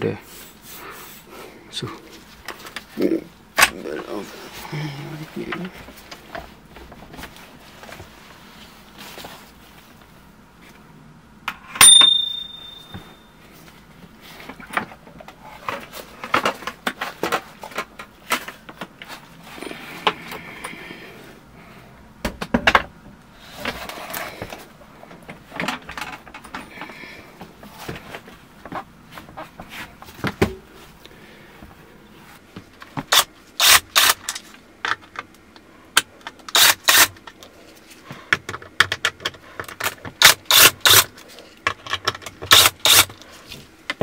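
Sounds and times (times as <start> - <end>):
sharp metallic click with ring: 11.8 - 13.0.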